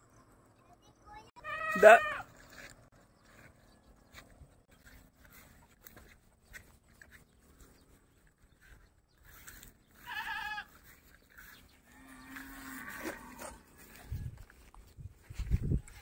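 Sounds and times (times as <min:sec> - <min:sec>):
goat bleating: 0:01.4 - 0:02.3, 0:10.0 - 0:10.8.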